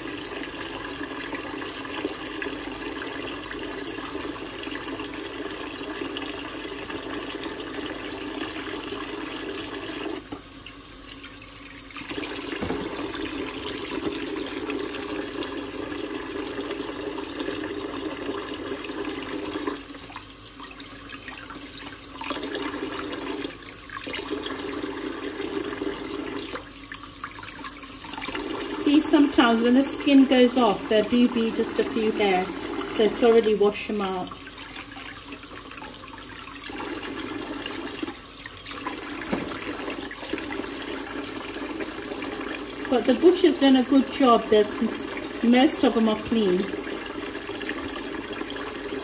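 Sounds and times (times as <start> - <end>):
tap water splashing into bowl: 12.0 - 14.3, 38.8 - 40.5.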